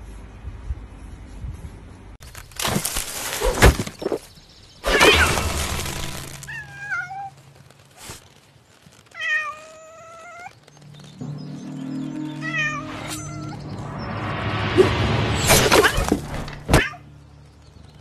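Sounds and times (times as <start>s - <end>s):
cat meowing: 6.5s - 7.4s.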